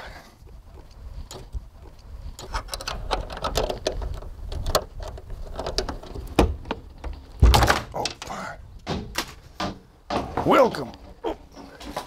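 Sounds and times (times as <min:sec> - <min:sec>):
metal door handle clicks and rattles: 0:02.4 - 0:10.2.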